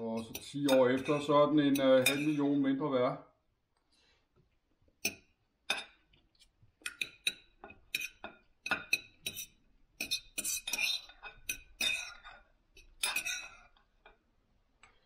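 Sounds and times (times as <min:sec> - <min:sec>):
cutlery scraping a plate: 0:00.0 - 0:02.6, 0:06.9 - 0:14.2
knife and fork clinking on plate: 0:00.2 - 0:02.6, 0:06.9 - 0:13.8.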